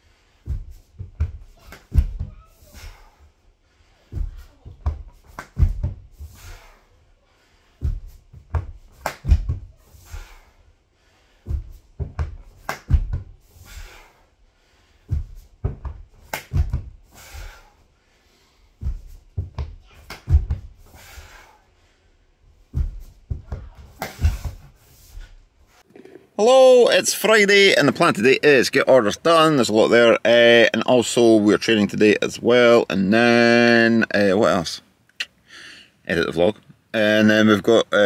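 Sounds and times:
hands and feet thudding on wood: 0.3 - 3.3, 4.0 - 6.8, 7.7 - 10.5, 11.3 - 14.2, 15.0 - 17.8, 18.7 - 21.5, 22.6 - 25.4
short sharp breath: 9.9 - 11.5, 13.5 - 15.1, 17.1 - 18.8, 20.8 - 22.2, 35.4 - 36.0.

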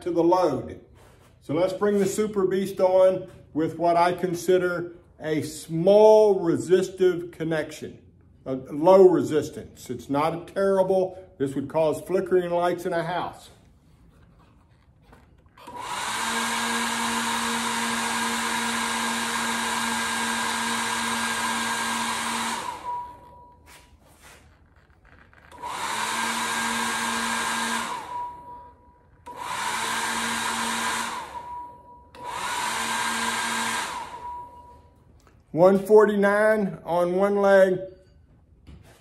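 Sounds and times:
load tester whirring and humming: 9.8 - 35.9.

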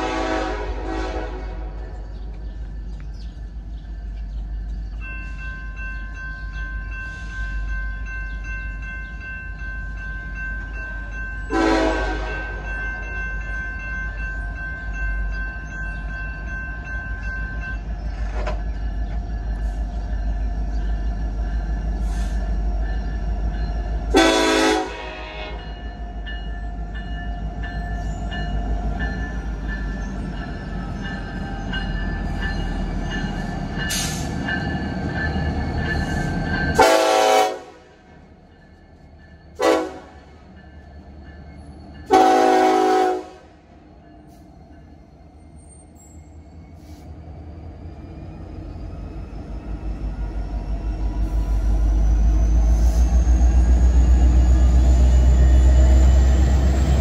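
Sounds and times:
locomotive air horn blasts: 0.0 - 1.9, 11.5 - 12.6, 24.1 - 25.7, 36.8 - 38.0, 39.6 - 40.3, 42.1 - 43.6
train rumble: 0.0 - 57.0.

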